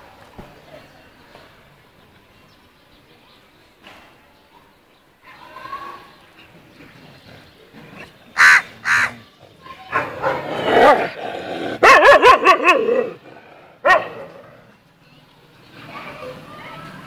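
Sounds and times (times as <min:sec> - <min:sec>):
dogs barking: 0:09.8 - 0:14.5.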